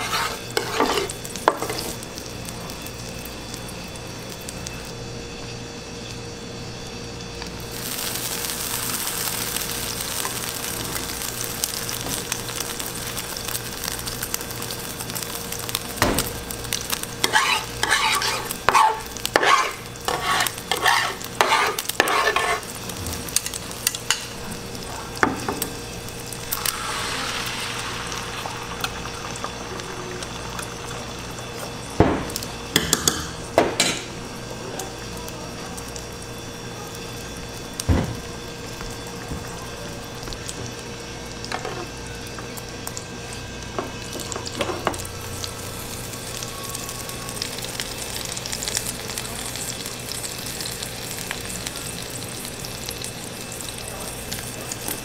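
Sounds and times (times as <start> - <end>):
plastic spatulas scraping a pan: 0.0 - 1.1, 17.3 - 22.6
egg mixture sizzling on griddle: 0.0 - 55.0.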